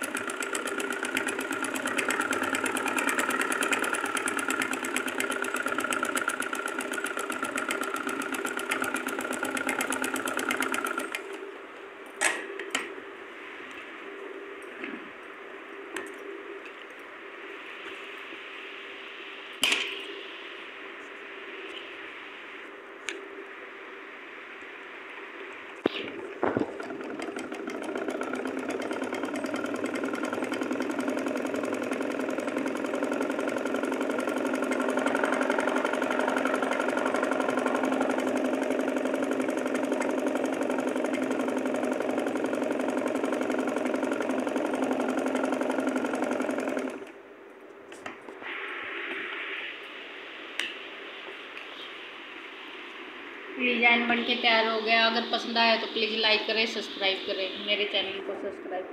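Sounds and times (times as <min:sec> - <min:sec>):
sewing machine stitching: 0:00.0 - 0:11.4, 0:26.0 - 0:47.2.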